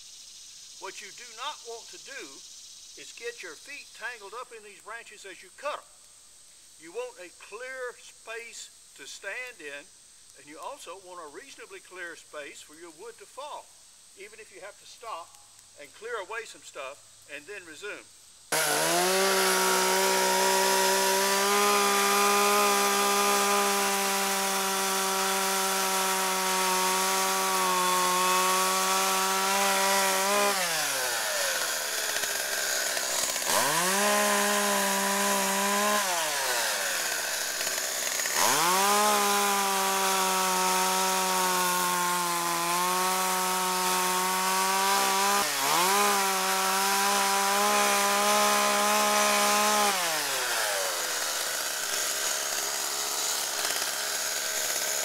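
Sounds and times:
chainsaw cutting wood: 0:18.5 - 0:55.0.

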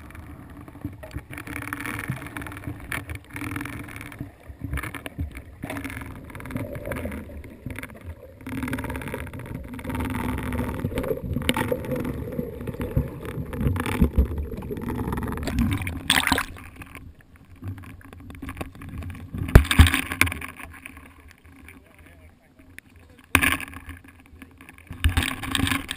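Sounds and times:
underwater rumble: 0:00.0 - 0:25.9
water splash: 0:15.4 - 0:16.9, 0:19.4 - 0:21.0.

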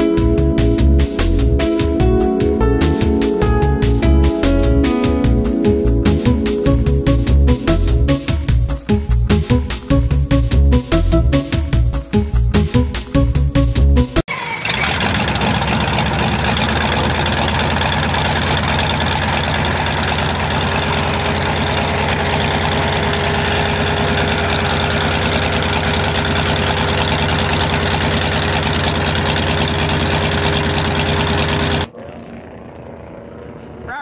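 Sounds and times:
radial engine running at idle: 0:14.3 - 0:31.9.

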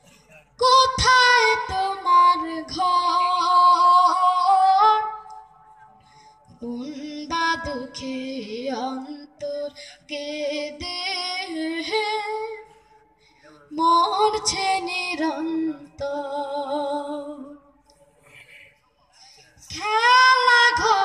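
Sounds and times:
person singing unaccompanied: 0:00.6 - 0:05.4, 0:06.6 - 0:12.6, 0:13.8 - 0:17.6, 0:19.6 - 0:21.0.

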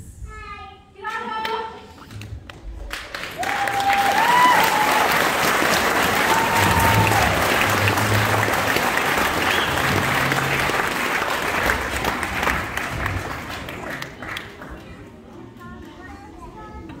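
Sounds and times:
audience applauding: 0:02.9 - 0:15.0.

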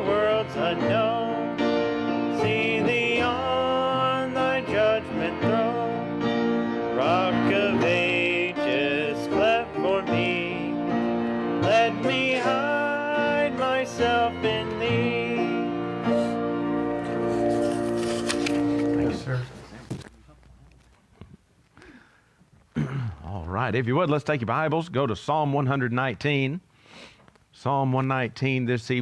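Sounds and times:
person singing a hymn: 0:00.0 - 0:19.3
held keyboard chords: 0:00.0 - 0:19.4
piano: 0:00.0 - 0:19.7.

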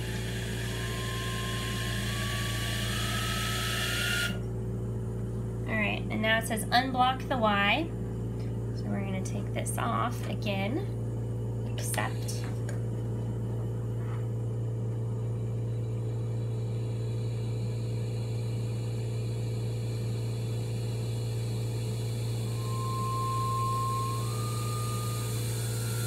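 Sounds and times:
machine whine stepping up in pitch: 0:00.0 - 0:04.4, 0:15.8 - 0:26.0
ventilator low hum: 0:00.0 - 0:26.0.

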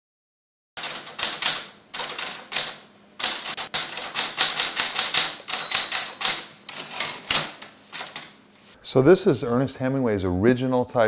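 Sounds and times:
typewriter keys clacking: 0:00.8 - 0:08.4.

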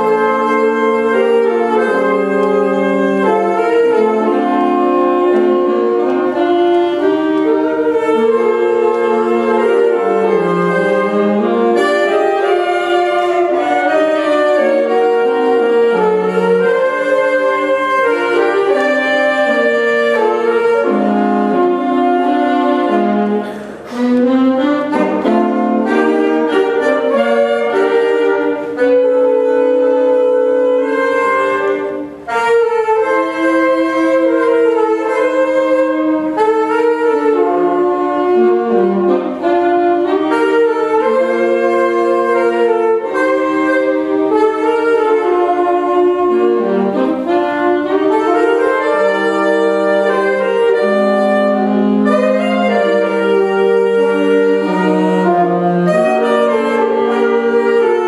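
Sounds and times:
saxophone quartet playing harmony: 0:00.0 - 0:58.0.

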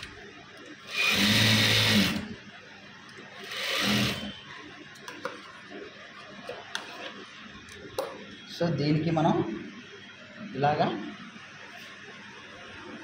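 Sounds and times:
sewing machine motor hum: 0:00.8 - 0:02.4, 0:03.4 - 0:04.4.

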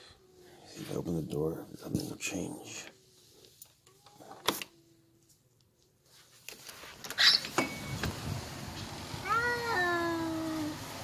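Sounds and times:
cat yowling: 0:09.2 - 0:10.8.

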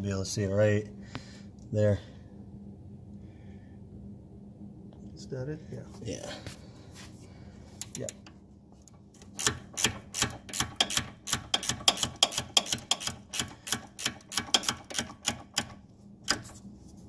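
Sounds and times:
ratchet wrench clicking: 0:09.2 - 0:16.4.

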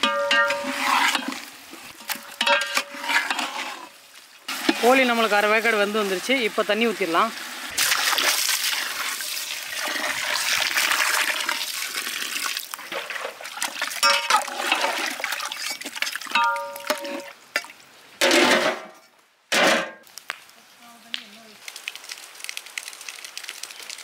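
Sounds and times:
water pouring into a pot: 0:00.2 - 0:17.4.

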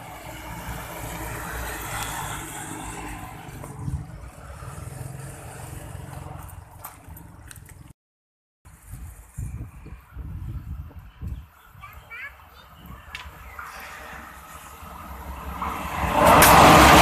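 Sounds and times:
traffic passing close by: 0:00.0 - 0:08.0, 0:08.7 - 0:17.0.

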